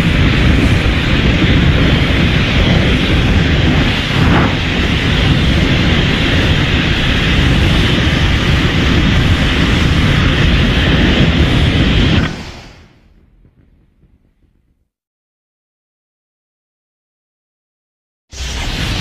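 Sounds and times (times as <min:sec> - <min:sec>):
monster rumbling roar: 0:02.8 - 0:06.5
brief crackle: 0:12.2 - 0:14.9.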